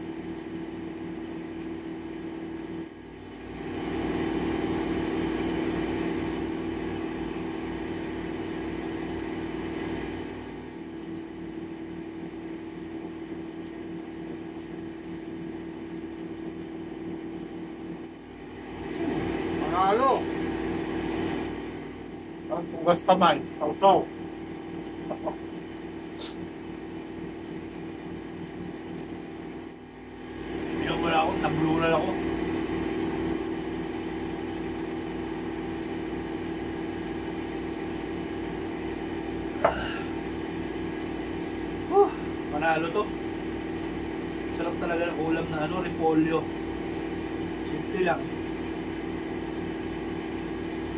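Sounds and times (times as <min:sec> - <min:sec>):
faint regular pulsing: 0:00.0 - 0:50.9
machine hum with low drone: 0:00.0 - 0:50.9.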